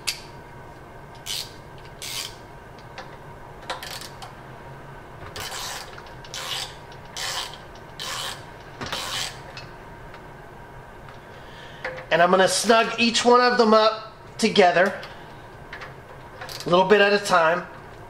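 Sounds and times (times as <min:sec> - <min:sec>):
ratchet wrench clicking: 0:01.2 - 0:02.4, 0:05.4 - 0:09.4.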